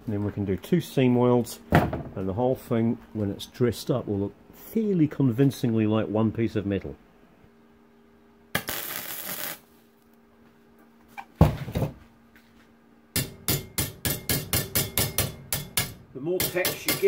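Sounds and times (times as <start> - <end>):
thump: 1.7 - 2.1
burst of hiss: 8.6 - 9.6
hammer tapping on steel: 13.2 - 17.0.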